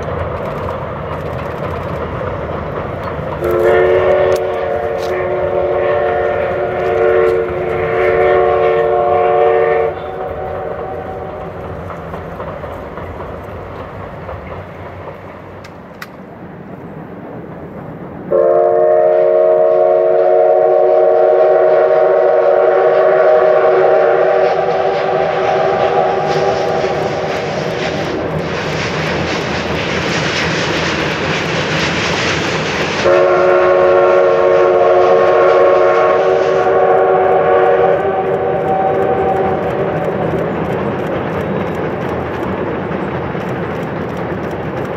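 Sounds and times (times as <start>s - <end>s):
passing train: 0.0s - 44.9s
steam locomotive exhaust: 0.0s - 44.9s
steam whistle blast: 3.4s - 11.3s, 18.3s - 28.1s, 33.0s - 39.7s.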